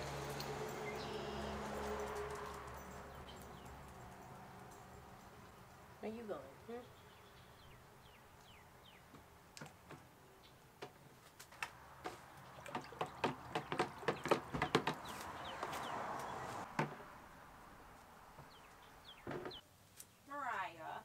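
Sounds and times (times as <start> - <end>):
water swishing: 11.9 - 17.8
paddle shaft knocking plastic bucket: 12.5 - 15.1.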